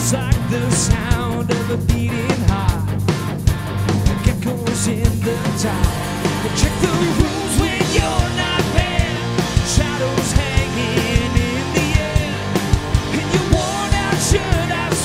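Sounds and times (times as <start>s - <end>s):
bass guitar: 0.0s - 15.0s
drum beat: 0.0s - 15.0s
electric guitars: 0.0s - 15.0s.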